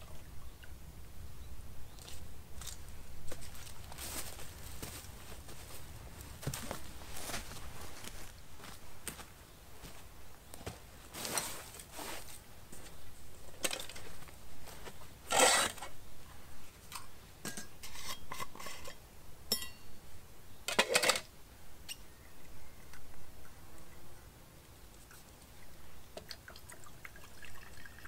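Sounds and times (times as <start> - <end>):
rustling: 2.0 - 10.0, 10.6 - 16.0
metal pots and lids clinking: 17.4 - 19.8, 20.7 - 21.3.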